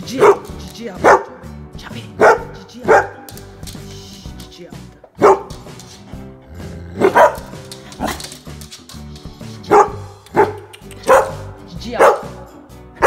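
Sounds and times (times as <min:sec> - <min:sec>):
background music: 0:00.0 - 0:13.0
dog barking: 0:00.2 - 0:01.4, 0:02.2 - 0:03.3, 0:05.2 - 0:05.6, 0:07.0 - 0:08.2, 0:09.7 - 0:12.5.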